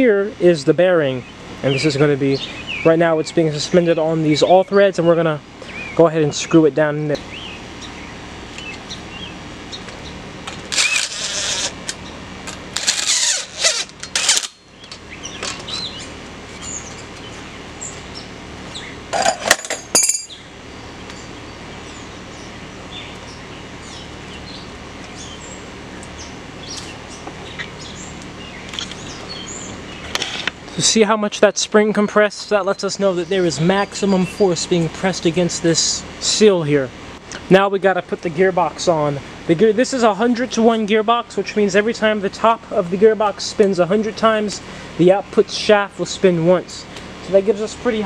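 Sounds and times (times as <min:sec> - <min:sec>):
outdoor background hum: 0:00.0 - 0:48.0
metal clinking and scraping: 0:19.1 - 0:20.4.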